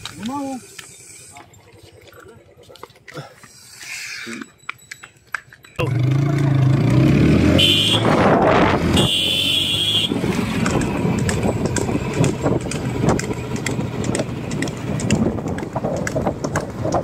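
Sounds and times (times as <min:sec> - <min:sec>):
cart and hooves clattering: 0:00.0 - 0:07.0, 0:10.1 - 0:17.0
motorcycle engine running: 0:05.8 - 0:08.0, 0:09.0 - 0:17.0
wind noise: 0:08.0 - 0:09.2, 0:10.0 - 0:17.0.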